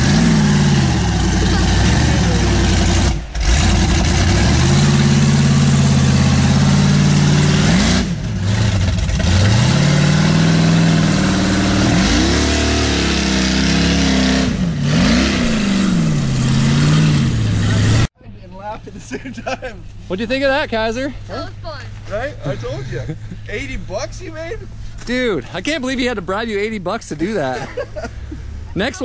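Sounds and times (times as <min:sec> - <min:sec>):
buggy engine revving hard: 0:00.0 - 0:18.1.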